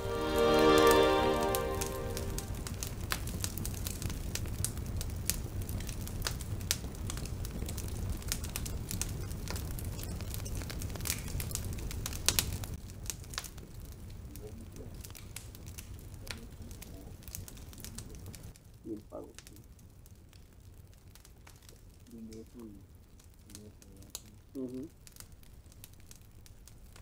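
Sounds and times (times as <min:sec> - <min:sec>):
campfire crackling and popping: 0:00.2 - 0:27.0.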